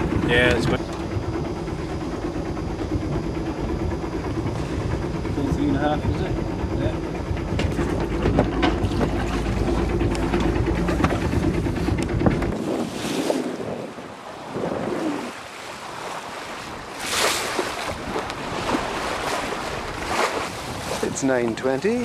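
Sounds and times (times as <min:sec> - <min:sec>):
wind noise: 0:00.0 - 0:15.4
boat diesel engine humming: 0:00.0 - 0:22.0
wind gusts on microphone: 0:02.9 - 0:22.0
rushing water: 0:12.6 - 0:21.8.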